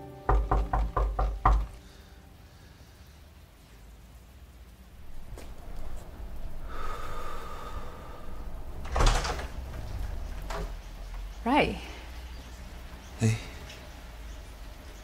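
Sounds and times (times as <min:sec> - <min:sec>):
door opening noise: 0:08.5 - 0:11.0.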